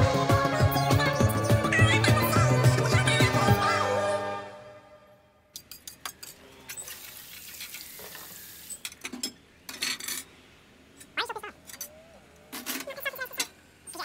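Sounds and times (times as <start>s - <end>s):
dishes and cutlery clinking: 5.6s - 6.4s, 8.9s - 10.3s
steady sizzling hiss: 6.6s - 11.0s.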